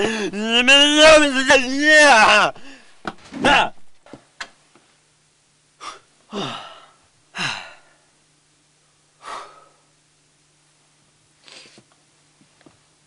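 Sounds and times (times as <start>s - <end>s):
man sighing heavily: 0.0s - 0.4s, 2.5s - 3.7s, 5.8s - 8.0s
faint steady hum: 0.0s - 13.0s.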